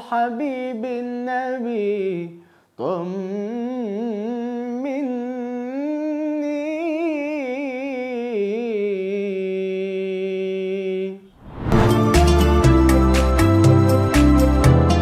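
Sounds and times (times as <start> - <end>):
young man singing wordlessly: 0.0 - 11.3.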